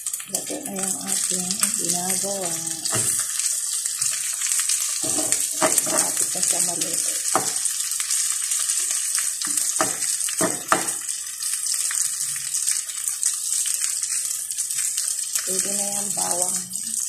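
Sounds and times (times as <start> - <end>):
chicken sizzling in oil: 0.0 - 17.0.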